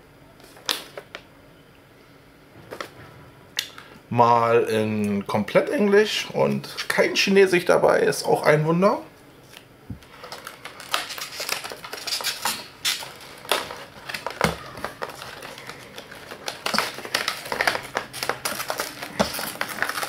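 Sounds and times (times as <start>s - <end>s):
plastic packaging crinkling: 9.5s - 20.0s.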